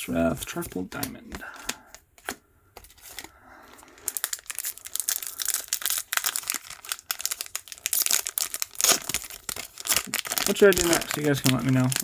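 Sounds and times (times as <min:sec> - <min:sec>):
foil wrapper crinkling: 0:02.8 - 0:12.0.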